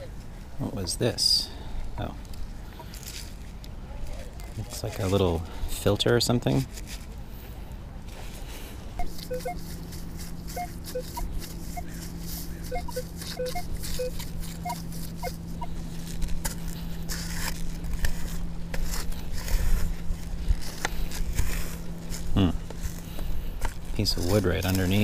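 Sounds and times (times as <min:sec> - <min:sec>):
steady low hum: 0:06.6 - 0:25.0
digging in sand: 0:08.2 - 0:25.0
metal detector beeps: 0:09.0 - 0:09.8, 0:10.5 - 0:15.8.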